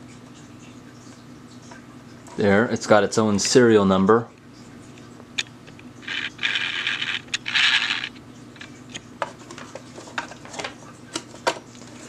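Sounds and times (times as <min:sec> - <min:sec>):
plastic scraping rubs: 0:06.0 - 0:08.2.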